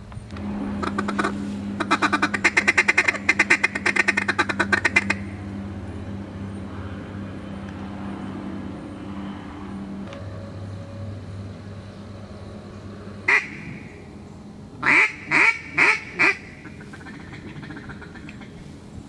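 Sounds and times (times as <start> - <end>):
steady low hum: 0.0 - 19.0
rapid duck quacks: 0.8 - 5.3, 14.8 - 18.5.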